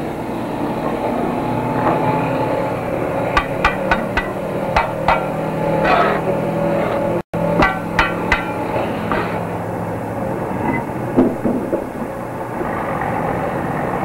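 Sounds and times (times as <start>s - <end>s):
machine droning: 2.4s - 14.0s
metallic clanks and knocks: 3.3s - 6.4s, 7.4s - 9.5s, 11.2s - 12.2s.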